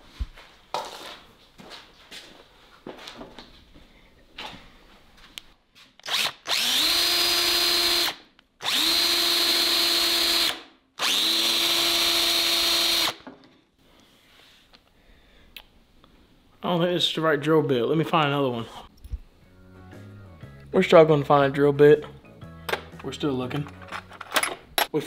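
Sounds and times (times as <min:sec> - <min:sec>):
power drill whining: 0:06.0 - 0:13.2.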